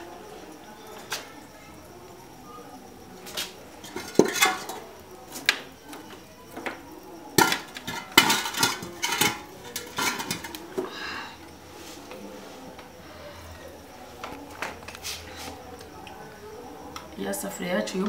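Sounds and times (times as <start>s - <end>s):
metal pot clanking: 3.8s - 4.9s, 7.4s - 10.6s.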